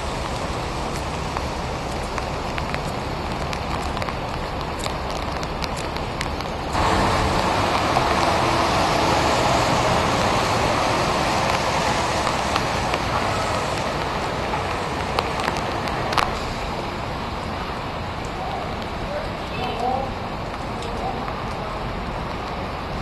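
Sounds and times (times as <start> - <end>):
rain on wet pavement: 0.0 - 23.0
water drips ticking: 0.1 - 16.5.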